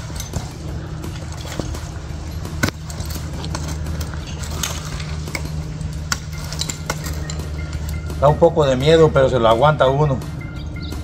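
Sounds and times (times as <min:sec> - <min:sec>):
metal climbing hardware clinking: 0:00.0 - 0:11.0
steady low hum: 0:00.0 - 0:11.0.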